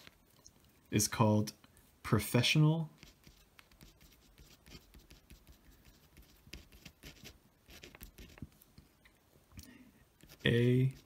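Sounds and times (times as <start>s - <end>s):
pen scratching on paper: 3.0s - 8.5s, 10.2s - 11.0s.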